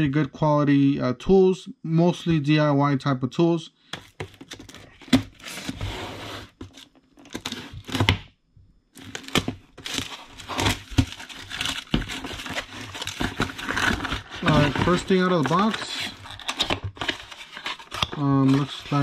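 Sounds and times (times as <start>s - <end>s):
cardboard and packaging rustling: 3.9s - 8.2s, 9.0s - 19.0s
plastic wrap crinkling and tearing: 9.0s - 19.0s.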